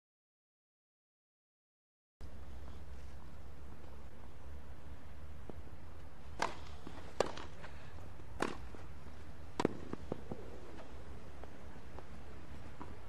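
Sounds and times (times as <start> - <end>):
tennis ball bouncing: 6.3 - 13.0
tennis rackets hitting ball: 6.3 - 13.0.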